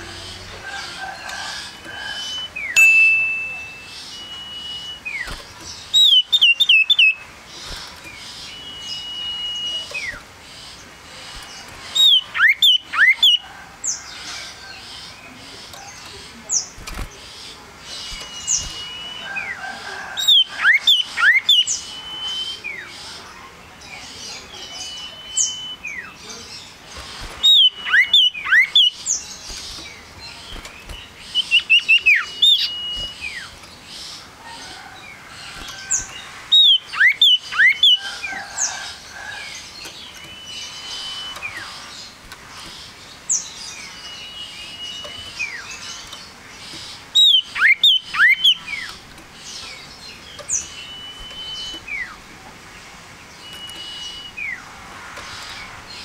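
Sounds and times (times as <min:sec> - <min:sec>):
bird singing whistles: 0:02.2 - 0:05.4, 0:08.4 - 0:10.2, 0:20.3 - 0:22.9, 0:24.7 - 0:26.1, 0:36.6 - 0:38.0, 0:40.2 - 0:41.7, 0:47.2 - 0:48.9, 0:50.5 - 0:52.2, 0:53.4 - 0:54.6.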